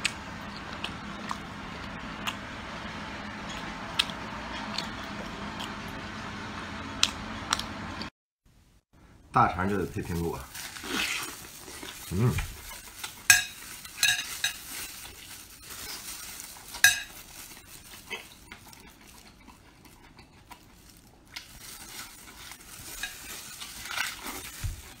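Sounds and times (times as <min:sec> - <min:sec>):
person chewing and sucking: 0:10.6 - 0:14.0, 0:14.6 - 0:25.0.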